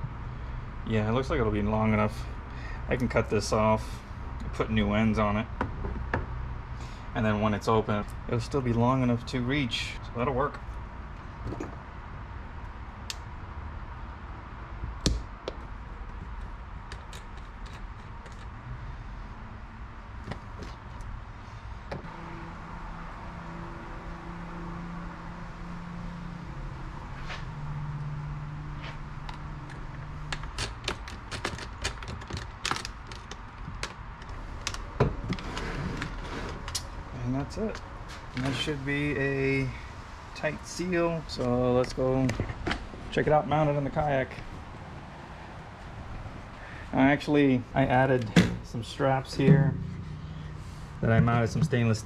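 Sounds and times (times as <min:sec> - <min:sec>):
tools clicking and knocking: 0:29.2 - 0:34.8
steady low hum: 0:45.6 - 0:52.0.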